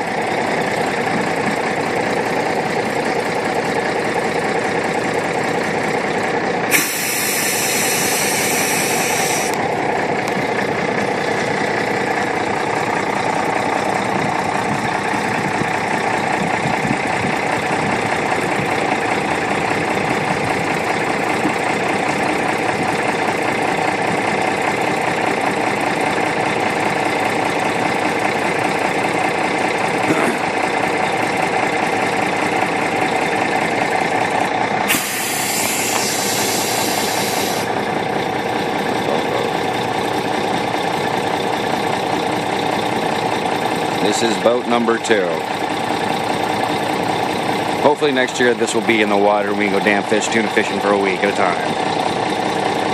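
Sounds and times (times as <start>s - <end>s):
truck engine idling: 0.0s - 52.9s
air hiss: 6.7s - 9.6s, 34.9s - 37.7s.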